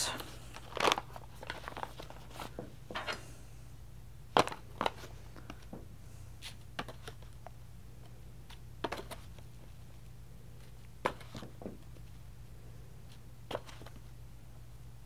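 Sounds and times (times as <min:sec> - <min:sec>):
paper bag rustling: 0:00.5 - 0:02.6.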